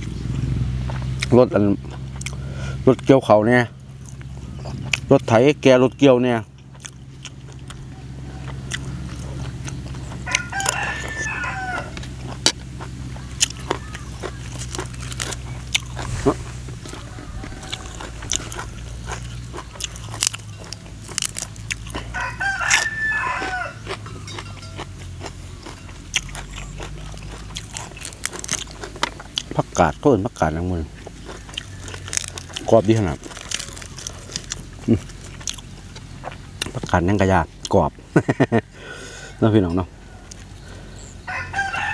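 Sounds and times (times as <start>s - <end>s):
eating clicks and crunches: 0.0s - 38.7s, 39.5s - 41.0s
harvester engine drone: 0.0s - 41.9s
rooster crowing: 7.7s - 9.4s, 10.1s - 12.3s, 16.0s - 24.5s, 31.2s - 34.6s, 38.7s - 41.9s.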